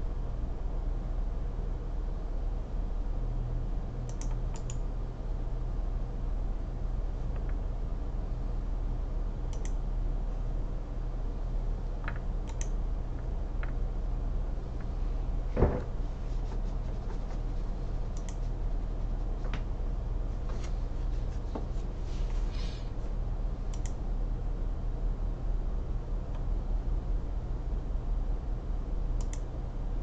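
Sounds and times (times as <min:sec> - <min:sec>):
low electrical hum: 0:00.0 - 0:30.0
mouse and keyboard clicks: 0:04.1 - 0:04.8, 0:12.0 - 0:12.8, 0:18.1 - 0:18.5
thump: 0:15.6 - 0:15.9.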